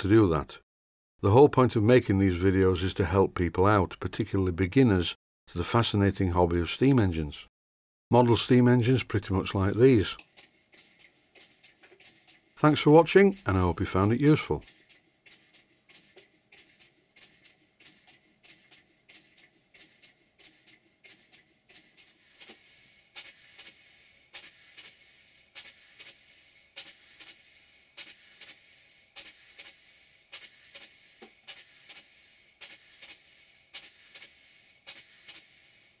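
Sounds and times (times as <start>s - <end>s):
model steam engine quick puffs: 9.7s - 36.0s.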